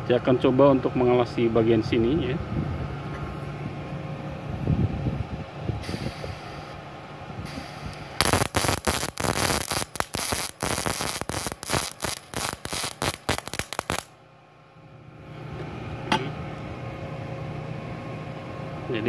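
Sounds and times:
welding arc crackling: 7.5s - 14.2s.

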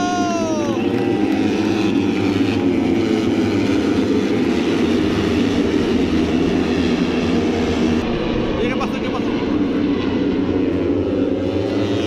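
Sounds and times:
racing motorcycles droning: 0.0s - 12.0s.

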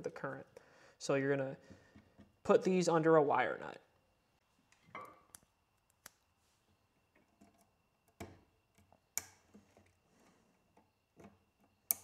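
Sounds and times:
wire connectors clicking: 10.8s - 12.0s.

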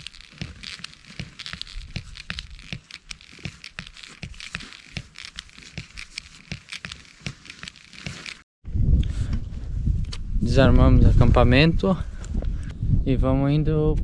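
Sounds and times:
gear crinkling and rustling: 0.0s - 8.5s.

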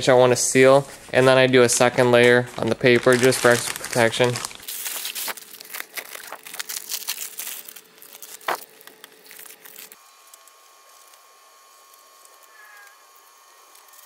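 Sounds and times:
paper and plastic rustling: 0.8s - 11.2s.

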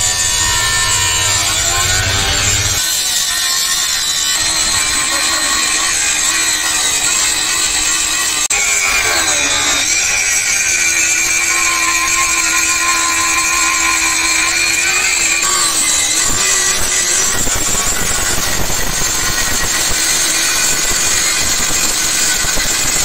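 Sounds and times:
angle grinder grinding steel: 0.0s - 23.0s.

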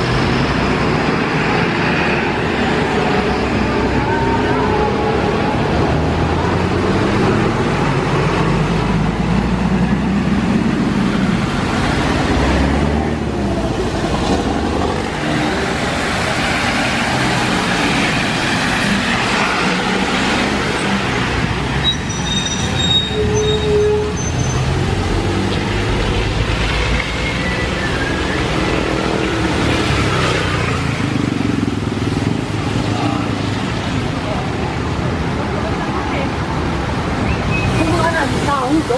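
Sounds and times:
bus engines running: 0.0s - 38.9s
tyres hissing on wet road: 0.1s - 22.9s, 24.3s - 38.9s
brief high squeals: 21.8s - 24.7s.

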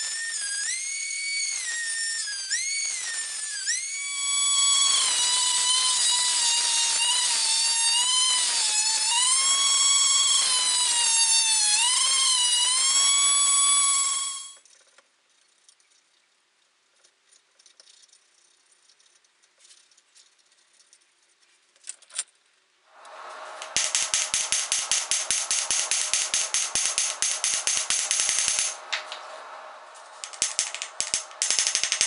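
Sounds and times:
steady rushing noise: 22.9s - 32.0s.

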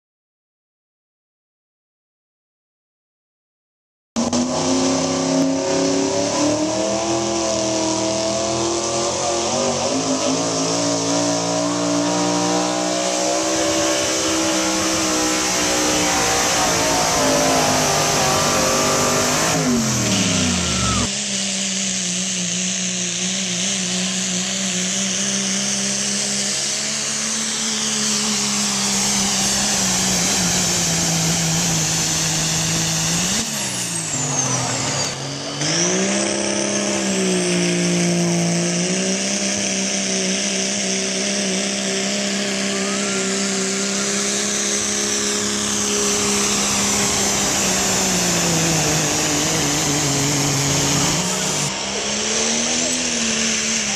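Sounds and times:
pickup engines at high revs: 4.2s - 53.9s.

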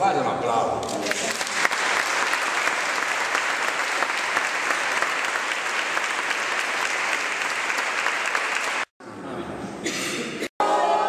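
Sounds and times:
crowd applauding: 1.0s - 8.9s.

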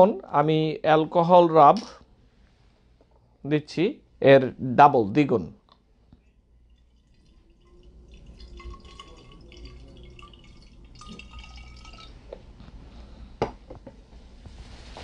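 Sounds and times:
liquid pouring into glass bottle: 6.2s - 12.5s.

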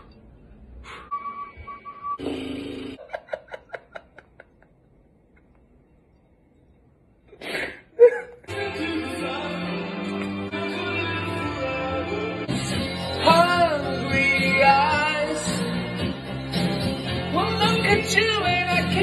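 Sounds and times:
short beeping tone: 1.0s - 2.2s
man laughing: 3.0s - 4.9s
music: 8.5s - 19.0s.

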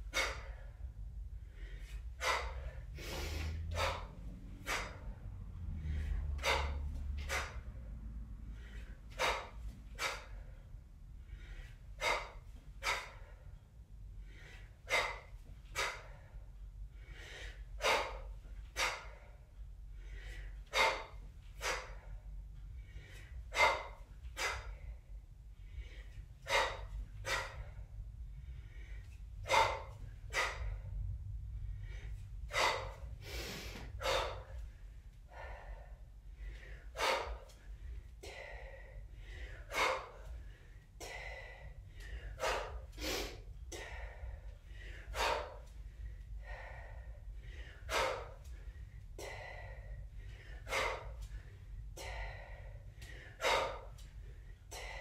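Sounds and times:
woman exhaling forcefully: 0.0s - 0.8s, 2.2s - 10.6s, 14.4s - 16.4s, 23.1s - 25.0s, 25.9s - 27.9s, 28.7s - 31.2s, 31.8s - 34.6s, 35.3s - 37.6s, 38.2s - 45.7s, 46.4s - 48.6s, 49.2s - 51.3s, 52.0s - 54.0s
steady low hum: 0.0s - 55.0s.

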